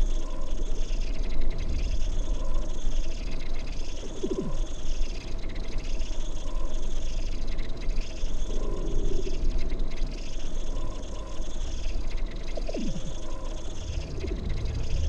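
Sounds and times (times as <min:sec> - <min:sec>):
deep rumbling bass drone: 0:12.8 - 0:15.0.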